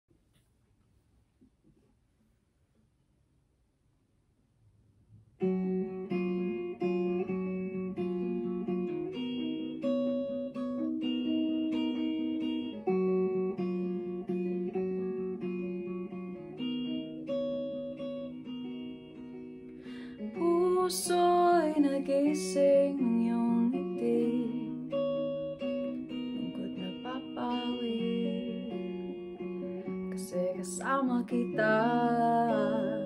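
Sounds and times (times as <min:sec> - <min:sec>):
clean electric guitar chords: 0:05.4 - 0:33.0
person singing: 0:19.8 - 0:25.4, 0:26.1 - 0:29.4, 0:30.0 - 0:33.0.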